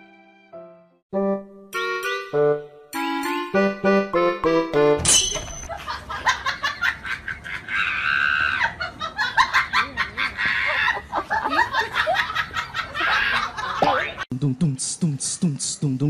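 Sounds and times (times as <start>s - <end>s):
people laughing: 5.7s - 14.2s.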